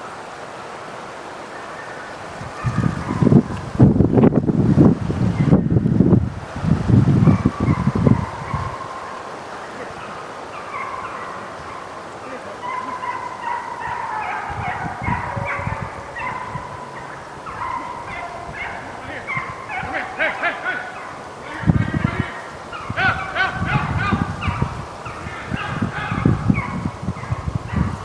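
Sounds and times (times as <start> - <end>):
hounds baying: 2.5 - 3.6, 7.2 - 28.0.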